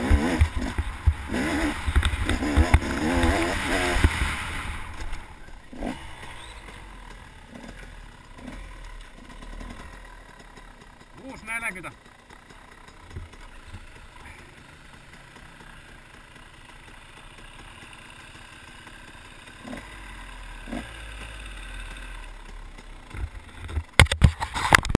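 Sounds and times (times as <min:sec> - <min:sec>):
dirt bike engine idling: 0:00.0 - 0:24.8.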